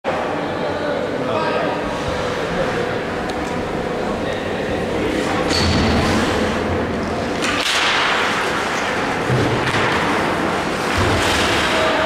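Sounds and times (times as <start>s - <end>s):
hockey stick clack: 7.4s - 12.0s.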